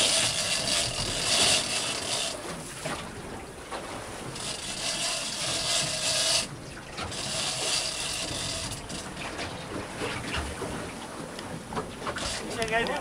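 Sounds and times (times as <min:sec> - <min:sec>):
fishing reel whirring: 0:00.0 - 0:02.5, 0:04.2 - 0:09.2, 0:12.2 - 0:12.7.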